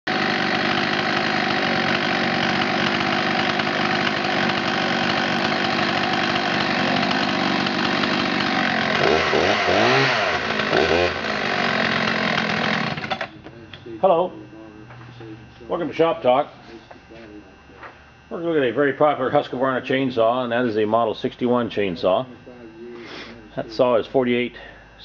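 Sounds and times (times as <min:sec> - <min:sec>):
chainsaw engine idling and revving: 0:00.1 - 0:13.4.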